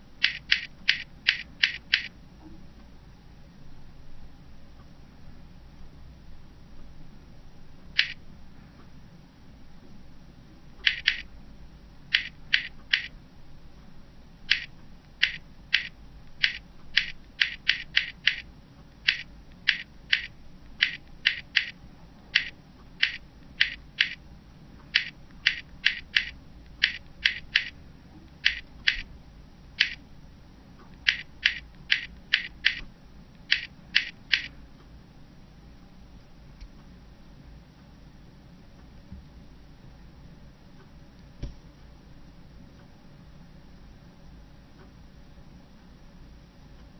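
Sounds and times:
on-screen keypad clicks: 0.2s - 2.1s, 8.0s - 8.2s, 10.8s - 11.3s, 12.1s - 13.1s, 14.5s - 18.4s, 19.1s - 21.8s, 22.4s - 24.2s, 25.0s - 27.7s, 28.4s - 29.0s, 29.8s - 30.0s, 31.1s - 32.8s, 33.5s - 34.5s.

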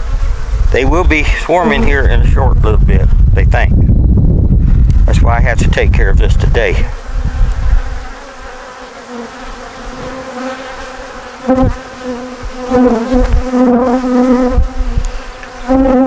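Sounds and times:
honeybees buzzing: 0.0s - 2.4s, 6.2s - 16.0s.

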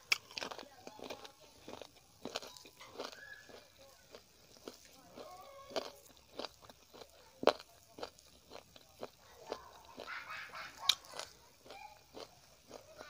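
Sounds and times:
wet chewing mouth smacks: 10.8s - 13.0s.

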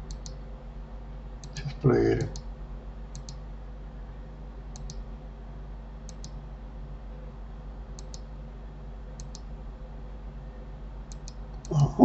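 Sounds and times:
computer mouse clicking: 0.0s - 0.4s, 3.1s - 3.4s, 4.7s - 5.0s, 6.1s - 6.4s, 8.0s - 8.3s, 9.2s - 9.5s, 11.1s - 11.8s
low steady hum: 0.0s - 12.0s.

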